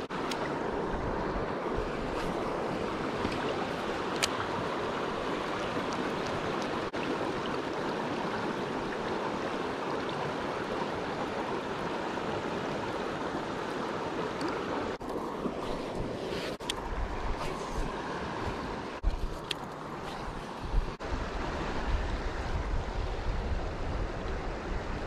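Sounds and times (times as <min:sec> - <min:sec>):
turbulent water churning: 0:00.0 - 0:19.2.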